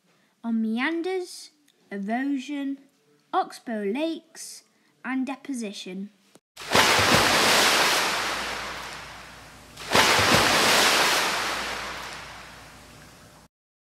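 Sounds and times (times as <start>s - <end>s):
waves breaking: 6.6s - 13.4s.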